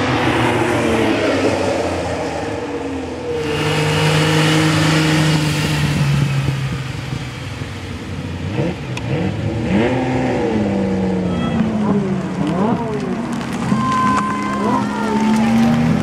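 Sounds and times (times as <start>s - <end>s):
sports car accelerating away: 0.0s - 11.2s
sports car passing close: 0.0s - 13.8s.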